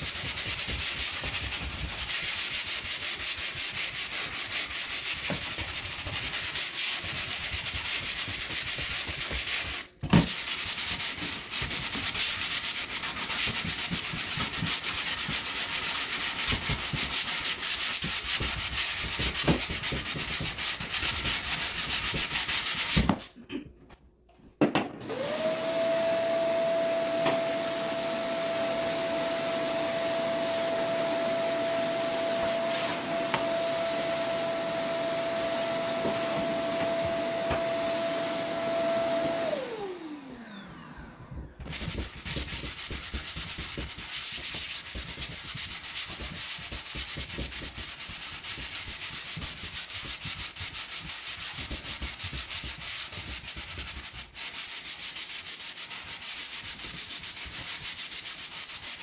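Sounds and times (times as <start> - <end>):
sanding block rubbing on wood: 0.0 - 23.2, 41.7 - 59.0
vacuum cleaner whining: 25.0 - 49.7.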